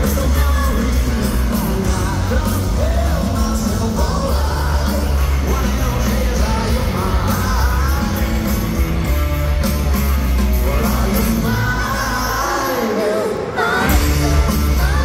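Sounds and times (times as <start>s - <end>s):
live rock band playing: 0.0s - 15.0s
person singing: 10.5s - 15.0s.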